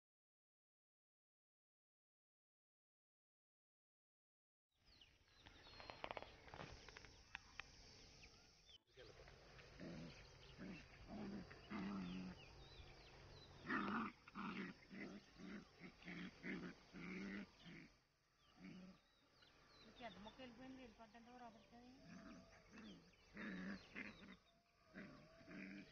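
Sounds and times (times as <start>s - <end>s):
dogs growling: 9.6s - 20.2s, 21.4s - 25.9s.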